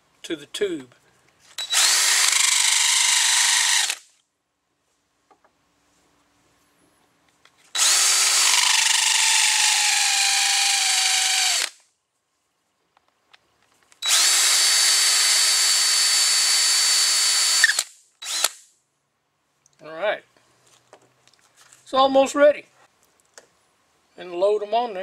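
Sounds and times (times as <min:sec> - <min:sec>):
hand drill whining: 0:01.6 - 0:04.1, 0:07.8 - 0:11.8, 0:14.0 - 0:18.6.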